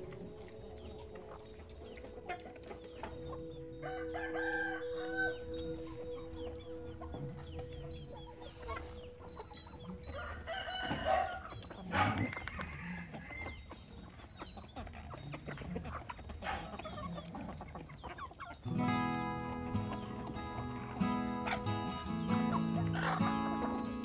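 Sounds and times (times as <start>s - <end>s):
chickens clucking: 0.0s - 24.0s
rooster crowing: 3.1s - 13.5s.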